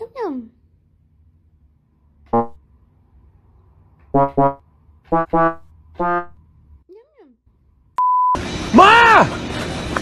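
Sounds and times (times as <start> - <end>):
short synthesizer notes: 2.3 - 2.6, 4.2 - 6.4.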